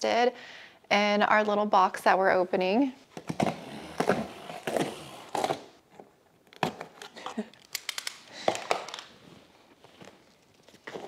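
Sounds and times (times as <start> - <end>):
box cutter slicing tape: 3.2 - 5.7.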